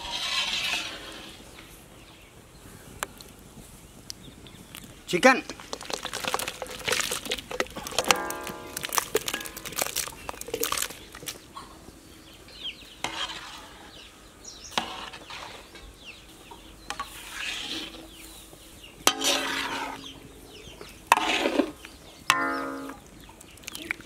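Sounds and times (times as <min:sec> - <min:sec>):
metal ladle scraping pan: 0:00.0 - 0:01.5, 0:13.0 - 0:14.1, 0:14.7 - 0:15.9, 0:16.9 - 0:18.2, 0:19.0 - 0:20.3, 0:21.1 - 0:23.0
gravy bubbling: 0:04.5 - 0:11.5.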